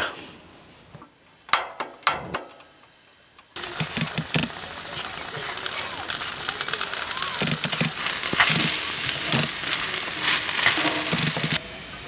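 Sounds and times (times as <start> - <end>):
sauce sizzling in a frying pan: 3.6 - 12.0.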